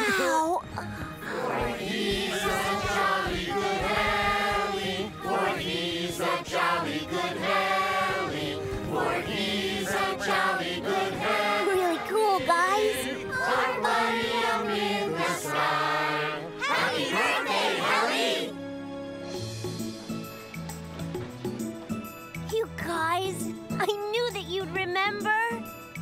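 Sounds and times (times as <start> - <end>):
backing music: 0.0 - 26.0
group of voices singing: 1.2 - 18.6.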